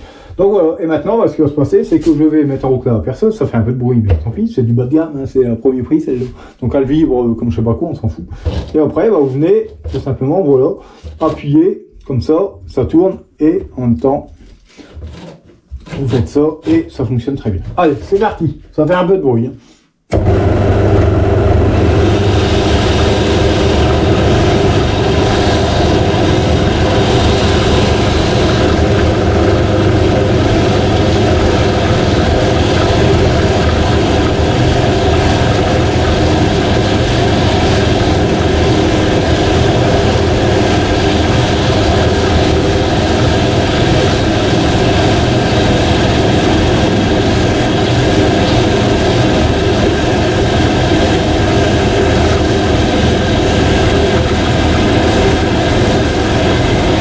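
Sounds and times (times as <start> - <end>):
electric drill hum: 20.1 - 57.0.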